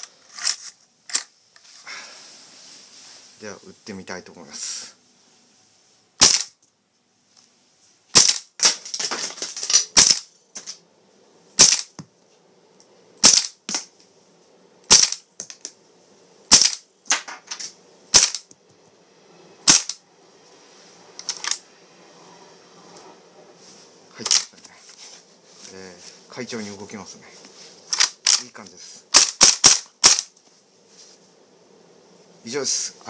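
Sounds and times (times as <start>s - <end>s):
airsoft shotgun shots: 6.2s - 6.5s, 8.1s - 8.8s, 11.6s - 11.9s, 13.2s - 13.9s, 14.9s - 15.2s, 16.5s - 17.2s, 19.7s - 20.0s, 29.1s - 30.3s.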